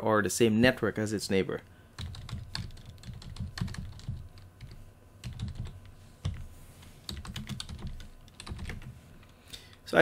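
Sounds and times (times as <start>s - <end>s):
typing on a keyboard: 2.0s - 6.4s, 7.1s - 8.9s.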